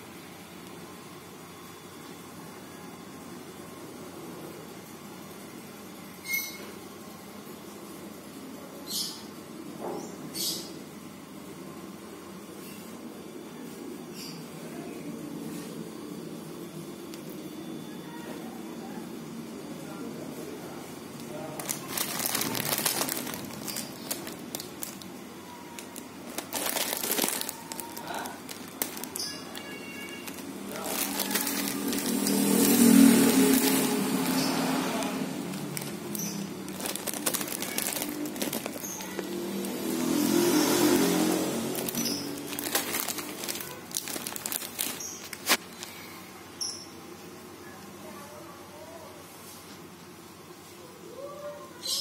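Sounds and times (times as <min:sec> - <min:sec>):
plastic snack bag crinkling: 0:21.2 - 0:46.0.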